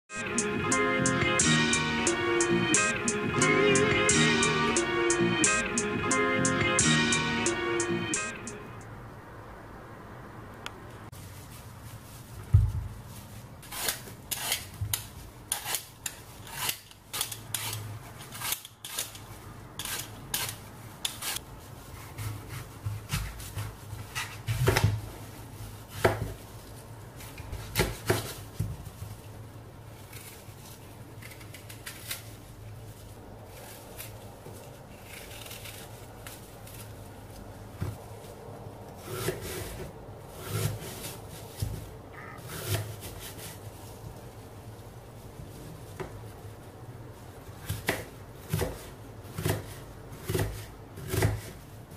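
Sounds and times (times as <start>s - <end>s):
peeler scraping apple: 13.6s - 24.8s, 33.5s - 36.8s
knife cutting through apple: 13.6s - 25.0s, 39.0s - 41.8s, 42.4s - 43.6s, 47.6s - 51.6s.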